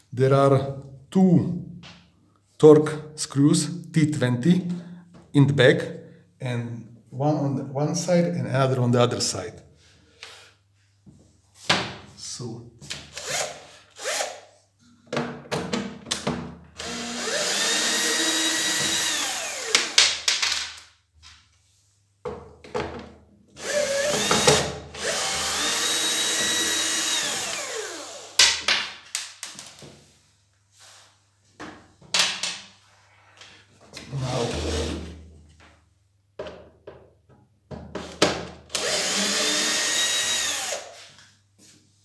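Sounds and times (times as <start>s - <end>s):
power drill whining: 13.1s - 14.4s, 16.8s - 20.0s, 23.6s - 28.4s, 38.7s - 41.0s.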